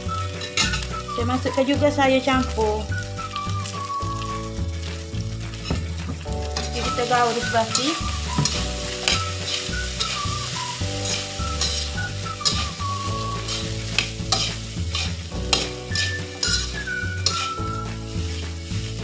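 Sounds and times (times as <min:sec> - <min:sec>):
food sizzling: 0:00.0 - 0:19.0
metal spatula scraping wok: 0:00.1 - 0:01.0, 0:06.6 - 0:19.0.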